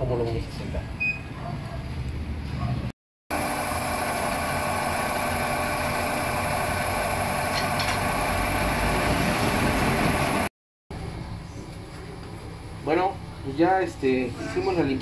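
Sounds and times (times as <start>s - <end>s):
drill press motor hum: 3.3s - 10.5s.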